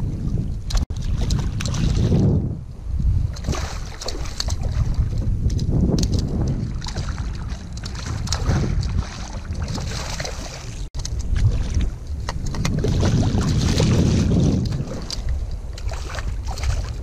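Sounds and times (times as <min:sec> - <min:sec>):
water sounds: 0:00.0 - 0:17.0
wind buffeting microphone: 0:00.0 - 0:17.0
small scattered clicks and knocks: 0:05.4 - 0:06.6.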